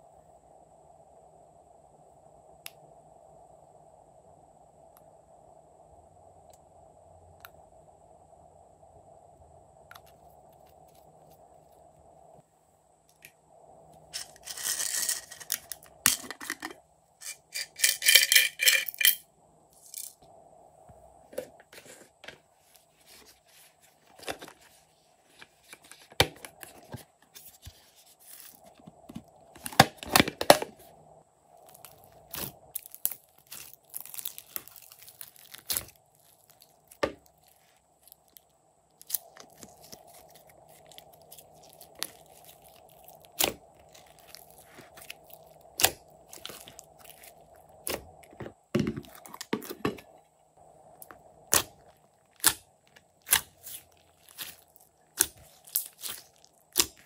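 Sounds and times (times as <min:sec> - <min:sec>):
plastic containers handled: 0:14.2 - 0:16.8, 0:21.3 - 0:30.9, 0:31.7 - 0:37.4, 0:39.0 - 0:50.2.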